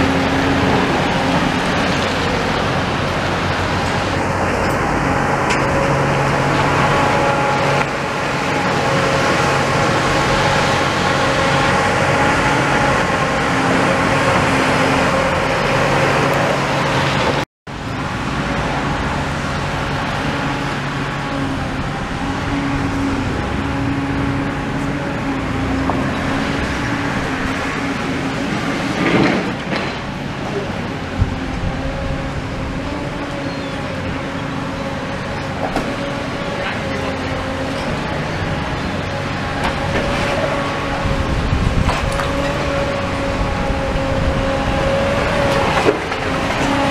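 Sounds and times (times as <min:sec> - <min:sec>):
excavator diesel engine running: 0:00.0 - 0:46.9.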